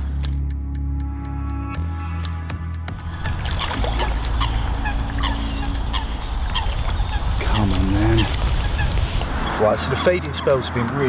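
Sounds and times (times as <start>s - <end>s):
steady low rumble: 2.9s - 9.6s
geese honking: 3.0s - 10.9s.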